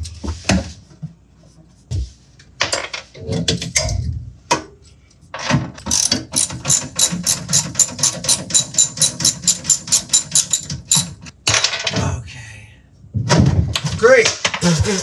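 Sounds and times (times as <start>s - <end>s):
ratchet wrench clicking: 5.8s - 11.1s.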